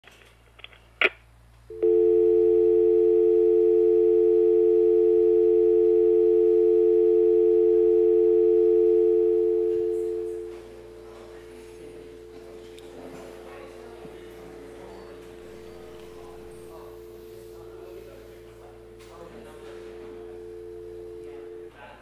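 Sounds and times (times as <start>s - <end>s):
telephone dial tone: 1.7s - 10.4s.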